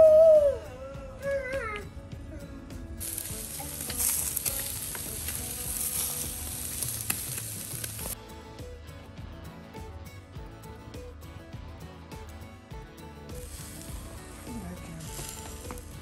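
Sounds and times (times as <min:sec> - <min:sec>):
food sizzling on a grill: 0:03.0 - 0:08.2, 0:13.3 - 0:16.0.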